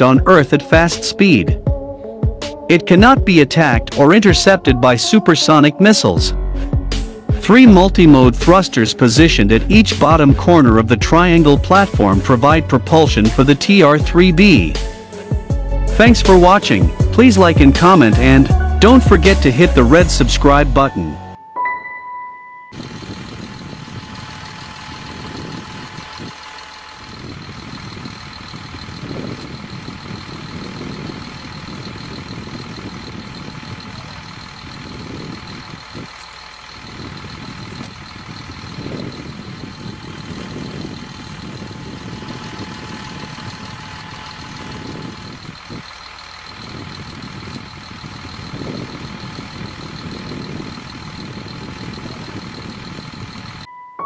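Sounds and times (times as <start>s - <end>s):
truck engines rumbling: 0.0s - 21.5s, 22.7s - 53.7s
high-pitched whine: 22.7s - 36.1s.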